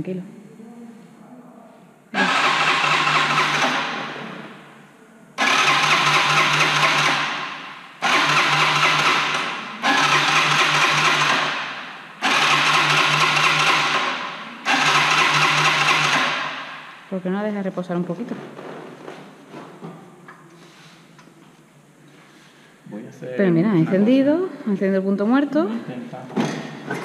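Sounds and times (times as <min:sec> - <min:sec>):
motorcycle starter cranking: 0:02.2 - 0:04.0, 0:05.4 - 0:07.4, 0:08.0 - 0:16.5.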